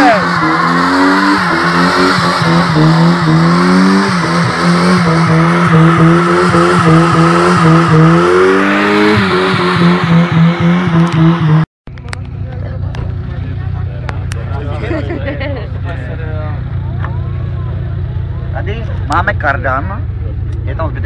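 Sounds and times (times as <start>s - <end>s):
car engine bouncing off rev limiter: 0.0s - 13.4s.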